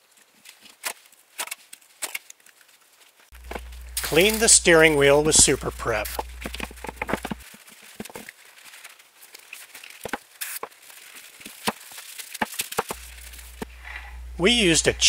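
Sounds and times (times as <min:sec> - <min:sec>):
cloth wiping plastic: 0:03.4 - 0:09.0, 0:09.8 - 0:15.0.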